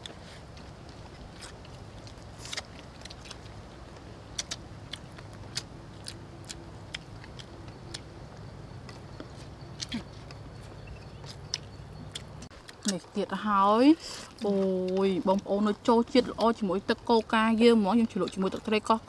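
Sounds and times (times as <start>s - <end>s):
mouth smacks while chewing: 1.2s - 3.7s, 4.3s - 8.1s.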